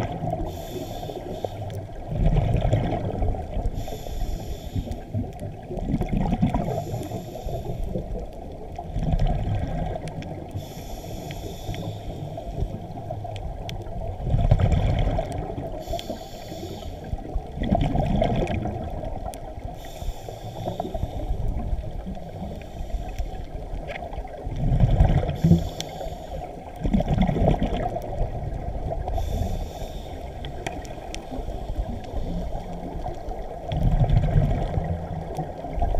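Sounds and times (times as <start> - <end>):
bubbles rumbling underwater: 0.0 - 0.6, 1.7 - 3.9, 5.0 - 10.6, 12.4 - 15.9, 17.1 - 19.8, 23.3 - 29.6, 30.2 - 35.9
regulator inhale hiss: 0.3 - 2.0, 3.5 - 5.3, 6.6 - 8.2, 10.4 - 13.0, 15.7 - 17.4, 19.6 - 23.8, 25.3 - 26.7, 28.9 - 33.2.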